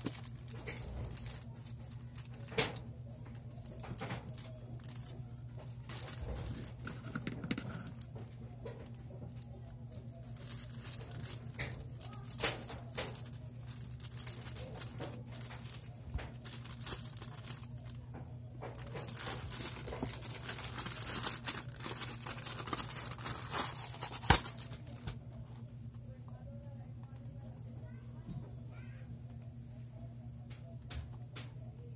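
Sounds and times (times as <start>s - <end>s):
plastic crinkling: 0.0s - 26.4s
steady low hum: 0.0s - 31.9s
plastic pouch being torn: 10.3s - 17.9s, 18.8s - 25.2s.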